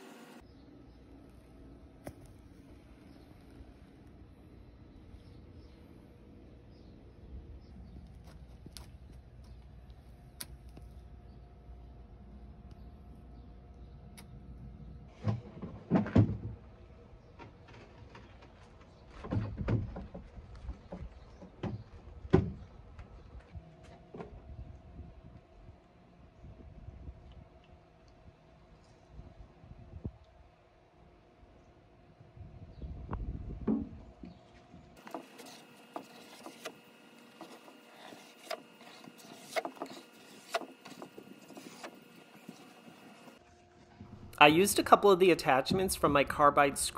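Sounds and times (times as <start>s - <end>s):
faint steady hum: 0.0s - 15.2s
scraper scraping paint off wood: 35.0s - 43.4s.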